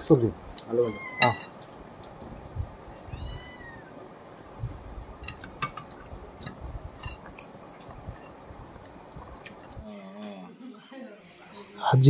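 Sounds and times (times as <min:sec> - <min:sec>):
cat meowing: 0:00.7 - 0:01.6, 0:02.8 - 0:04.0.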